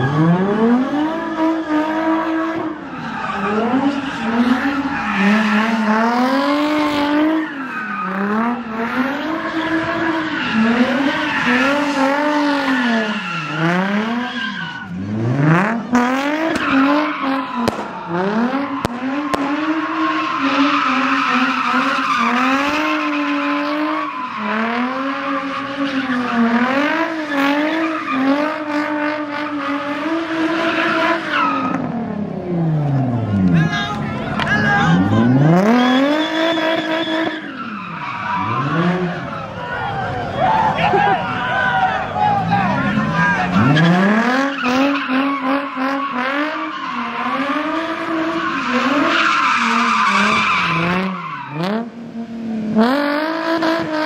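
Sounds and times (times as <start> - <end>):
car engine revving: 0.0 - 54.0
tyres squealing: 18.4 - 28.4, 34.2 - 51.6.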